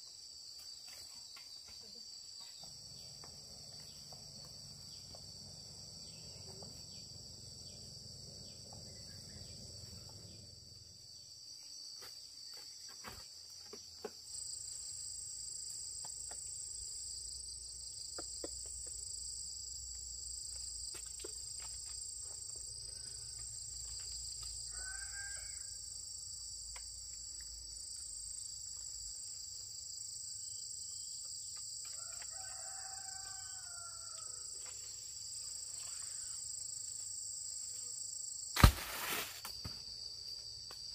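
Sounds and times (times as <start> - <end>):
insect chorus: 0.0 - 40.9
rooster crowing: 24.7 - 25.8, 31.9 - 34.5.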